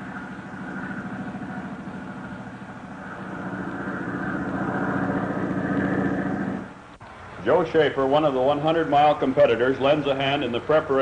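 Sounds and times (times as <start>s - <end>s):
motorcycle engine running: 0.0s - 6.9s.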